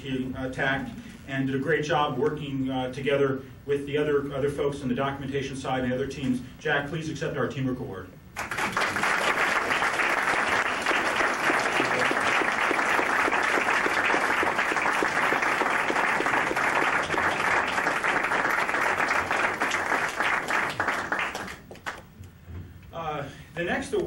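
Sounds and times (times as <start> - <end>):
audience applauding: 8.4 - 22.1.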